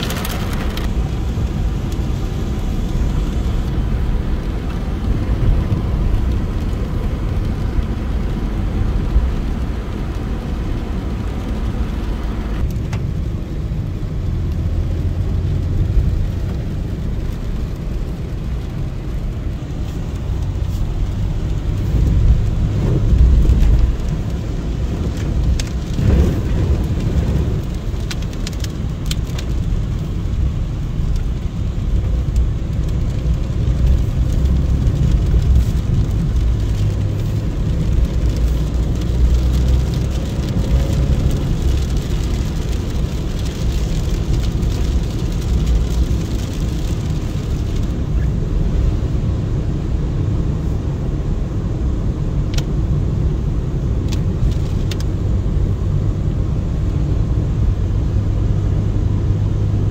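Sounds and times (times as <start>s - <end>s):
heavy rain pouring: 0.0s - 51.2s
deep thunder rumble: 24.9s - 28.0s.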